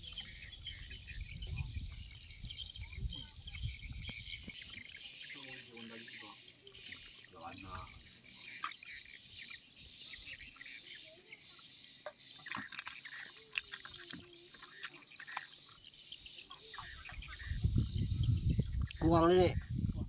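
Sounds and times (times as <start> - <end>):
insects chirping: 0.0 - 19.5
birds chirping: 0.0 - 20.0.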